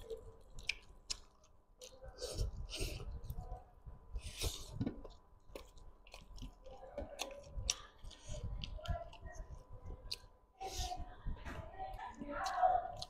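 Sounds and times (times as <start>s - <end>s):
mouth clicks and smacks: 0.0s - 3.4s
person chewing food: 0.0s - 11.0s, 12.0s - 13.0s.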